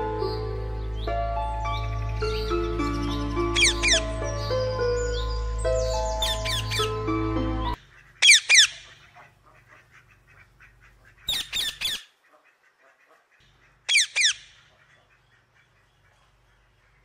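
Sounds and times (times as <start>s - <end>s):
toucan yelping calls: 2.1s - 5.4s, 6.1s - 7.0s, 8.0s - 10.0s, 11.2s - 13.0s, 13.9s - 15.8s.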